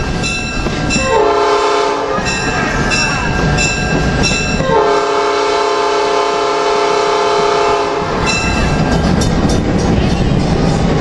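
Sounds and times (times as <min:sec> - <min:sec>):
train rumble and wheel clatter: 0:00.0 - 0:11.0
locomotive air horn blast: 0:01.0 - 0:02.3, 0:04.6 - 0:08.2.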